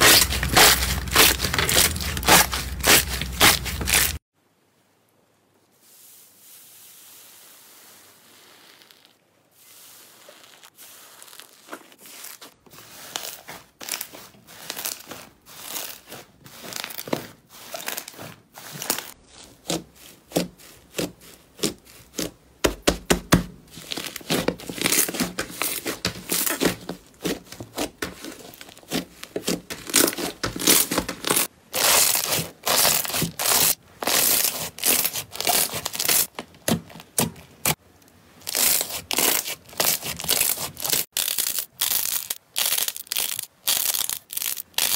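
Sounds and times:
slime crackling and crinkling: 0.0s - 4.2s, 8.0s - 22.4s, 23.7s - 37.8s, 38.4s - 44.9s.

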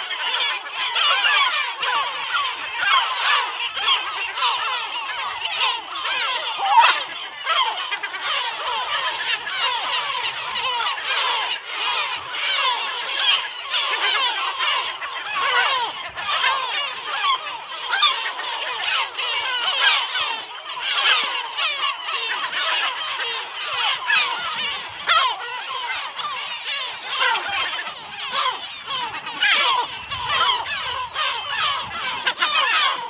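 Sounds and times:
gulls calling: 0.0s - 33.0s.

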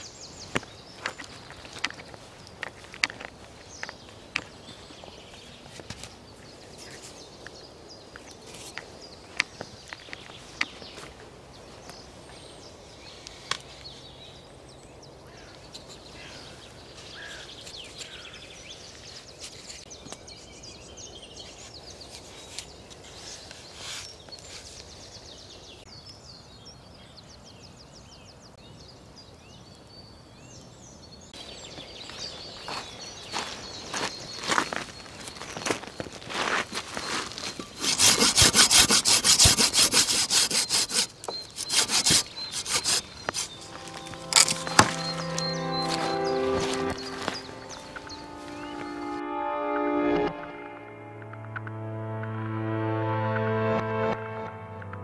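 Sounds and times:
footsteps crunching on gravel: 0.0s - 7.4s, 8.2s - 12.5s, 31.6s - 38.4s, 41.5s - 49.2s
birds chirping: 0.0s - 55.0s
outdoor hush: 31.3s - 55.0s.

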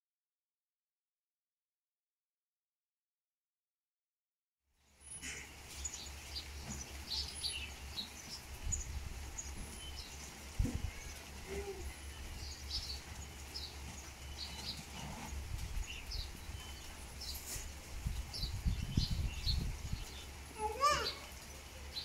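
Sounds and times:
small birds chirping: 4.8s - 22.0s.

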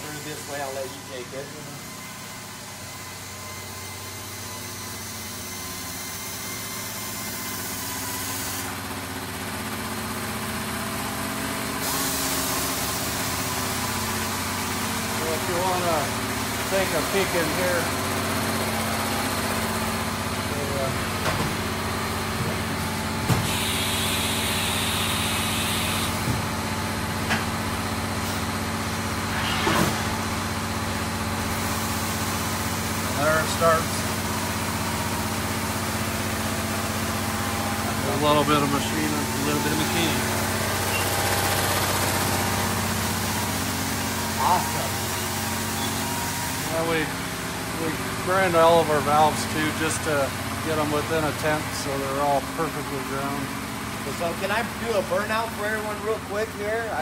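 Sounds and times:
engine running steadily: 0.0s - 4.6s, 5.4s - 57.0s
machine humming: 11.8s - 49.4s.

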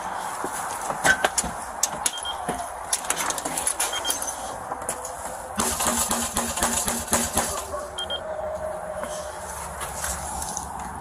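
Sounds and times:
rustling: 9.0s - 11.0s.

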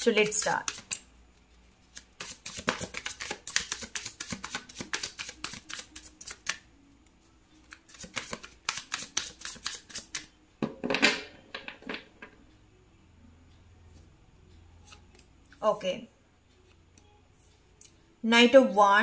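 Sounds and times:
cards being shuffled: 0.2s - 1.0s, 1.8s - 6.6s, 7.6s - 10.3s.

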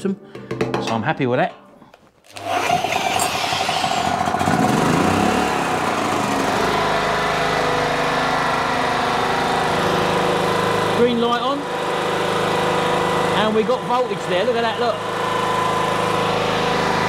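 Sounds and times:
cordless drill whining: 2.3s - 5.3s
generator engine cranking: 2.3s - 17.0s
generator engine running: 2.3s - 17.0s.

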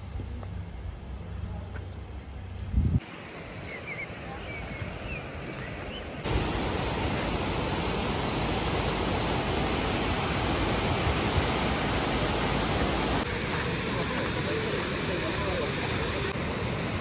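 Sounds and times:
waterfall rushing: 6.2s - 17.0s.

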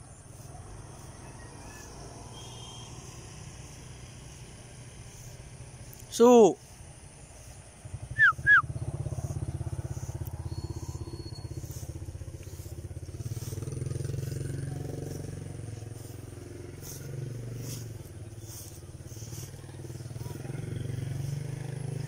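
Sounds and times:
motorcycle engines passing: 0.0s - 22.0s
falling whistle-like chirps: 1.2s - 3.4s, 8.0s - 8.8s, 10.3s - 12.0s.

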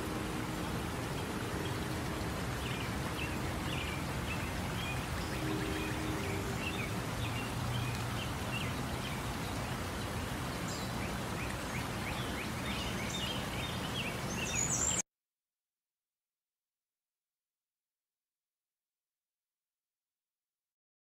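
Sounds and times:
rushing water: 0.0s - 15.0s
small birds chirping: 0.2s - 15.0s.

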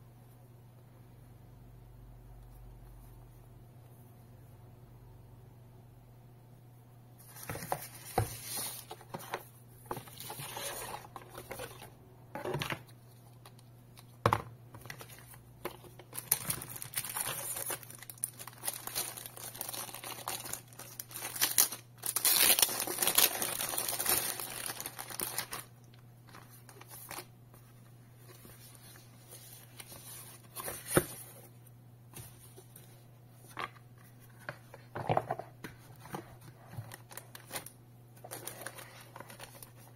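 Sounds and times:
plastic packaging crinkling: 14.8s - 27.3s, 36.7s - 39.9s.

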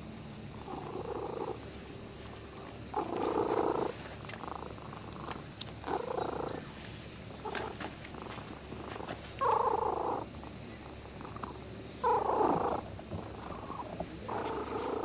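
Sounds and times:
cat purring: 0.6s - 1.6s, 2.9s - 6.7s, 8.9s - 10.3s, 11.0s - 15.0s.

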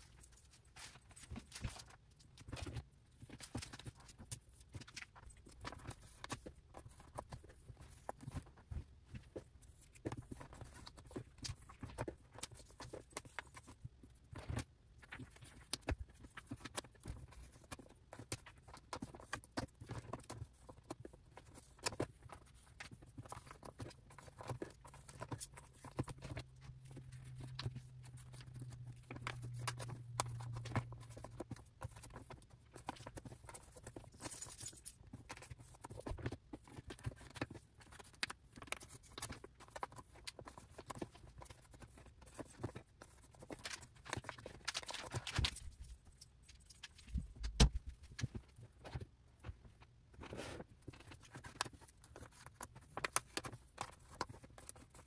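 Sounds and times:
plastic sleeve crinkle: 43.3s - 48.4s.

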